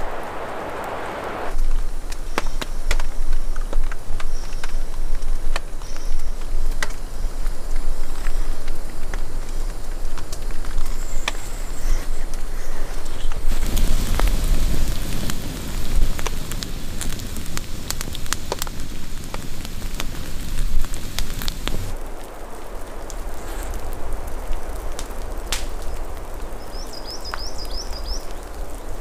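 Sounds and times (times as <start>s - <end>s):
rain falling: 0.0s - 2.2s, 6.4s - 29.0s
campfire crackling: 0.0s - 29.0s.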